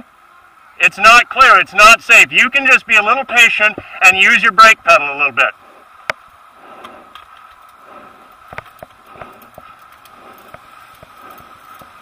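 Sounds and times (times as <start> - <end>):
faint steady whine: 0.0 - 12.0
road noise: 0.0 - 12.0
bicycle clicking and rattling: 5.8 - 12.0.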